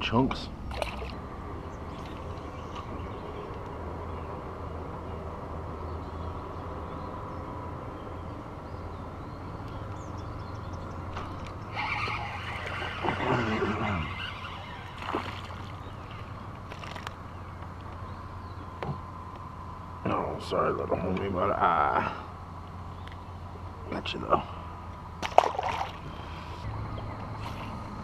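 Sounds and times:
fish splashing at the surface: 0:00.7 - 0:01.2, 0:14.9 - 0:15.8, 0:25.2 - 0:26.2
sharp splash or knock: 0:25.2 - 0:26.0.

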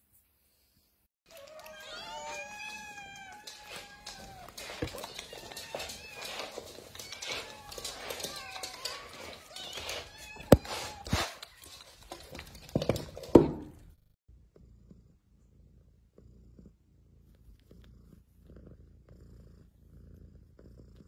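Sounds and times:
cat purring: 0:14.3 - 0:21.0.

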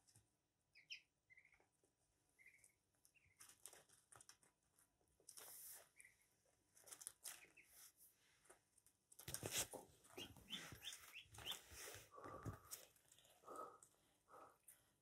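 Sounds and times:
ducklings peeping: 0:00.6 - 0:03.7, 0:05.8 - 0:06.4, 0:07.3 - 0:07.9, 0:10.0 - 0:12.4.

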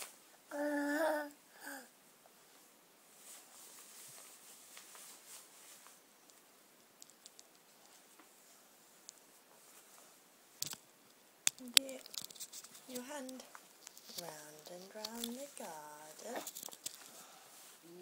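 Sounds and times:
small clicks: 0:06.3 - 0:08.0.

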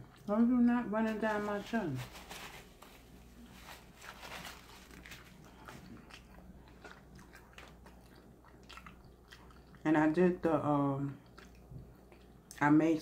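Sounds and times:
person chewing food: 0:00.0 - 0:00.3, 0:03.0 - 0:09.9, 0:11.0 - 0:12.6.

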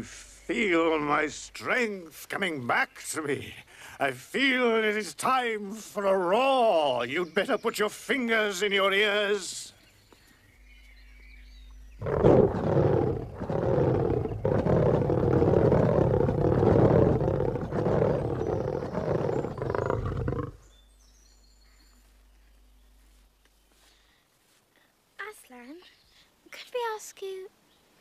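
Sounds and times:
lion roaring: 0:12.0 - 0:20.6.

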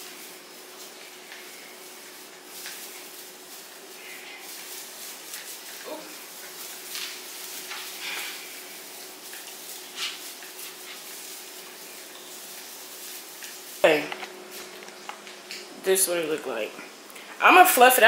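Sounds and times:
artificial tree branches rustling: 0:00.0 - 0:17.9.

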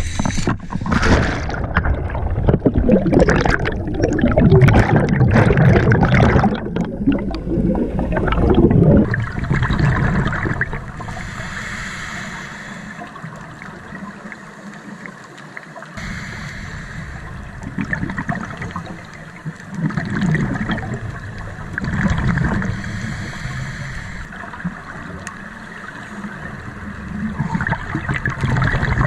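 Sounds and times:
churning water and bubbles: 0:00.0 - 0:29.0
underwater hiss: 0:10.9 - 0:13.7, 0:15.9 - 0:19.6, 0:20.6 - 0:27.0.

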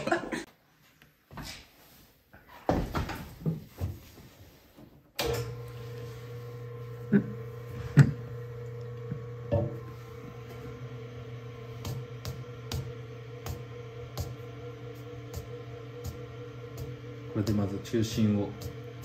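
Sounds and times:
potter's wheel motor humming: 0:05.2 - 0:19.0.

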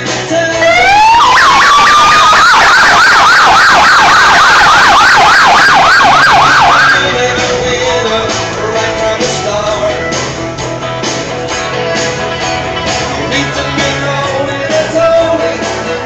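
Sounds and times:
police motorcycle siren: 0:00.6 - 0:07.9.

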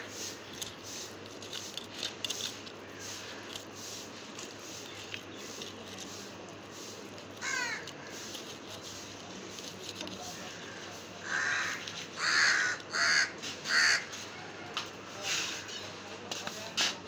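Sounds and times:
crow cawing: 0:07.4 - 0:08.3, 0:10.4 - 0:14.3.

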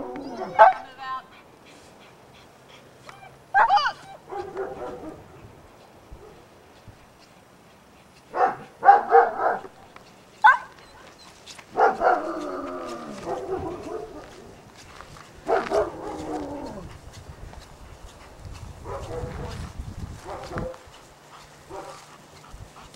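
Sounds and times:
dog yelping: 0:00.0 - 0:00.9, 0:03.1 - 0:05.2, 0:10.4 - 0:14.5
dog barking: 0:00.4 - 0:00.9, 0:03.6 - 0:05.2, 0:08.3 - 0:09.7, 0:10.4 - 0:10.8, 0:11.7 - 0:12.5, 0:13.1 - 0:14.4, 0:15.4 - 0:16.5, 0:18.8 - 0:19.6, 0:20.2 - 0:20.8, 0:21.7 - 0:22.0.

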